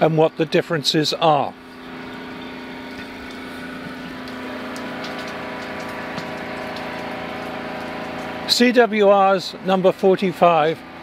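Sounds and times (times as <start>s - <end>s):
machine motor humming: 1.5s - 11.0s.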